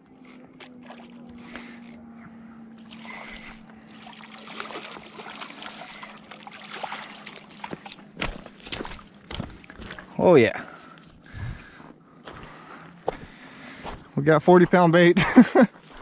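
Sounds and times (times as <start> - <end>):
fish splashing in water: 2.8 - 10.0.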